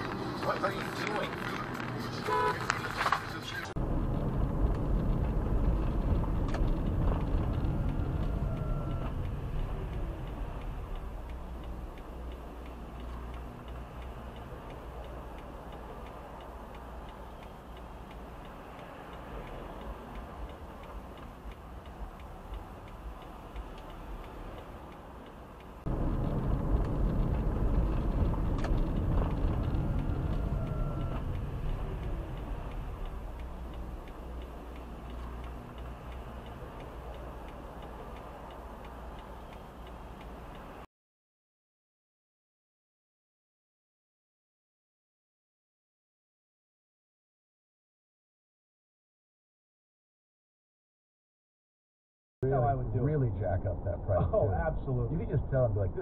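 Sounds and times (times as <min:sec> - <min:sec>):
car interior road rumble: 0:00.0 - 0:40.8.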